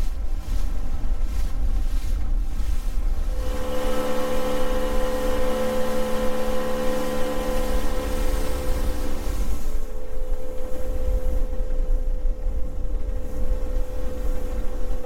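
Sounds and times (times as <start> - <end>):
wind rumbling on microphone: 0.0 - 15.0
outboard motor running: 3.4 - 11.6.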